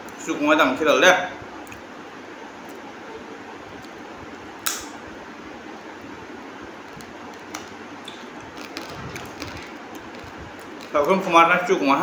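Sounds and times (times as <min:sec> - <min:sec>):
fan noise: 0:00.0 - 0:12.0
sharp click: 0:04.6 - 0:05.0.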